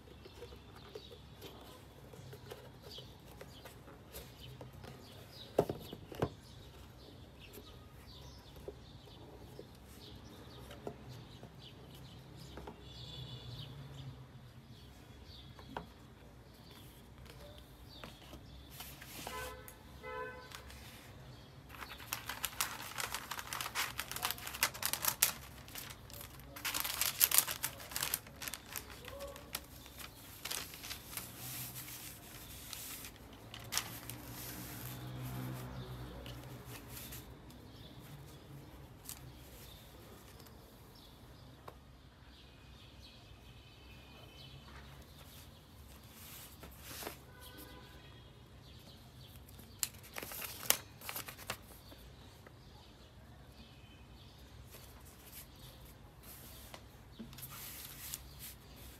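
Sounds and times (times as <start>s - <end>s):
paper wrapping crinkling: 21.7s - 37.3s, 49.4s - 51.9s, 57.4s - 58.9s.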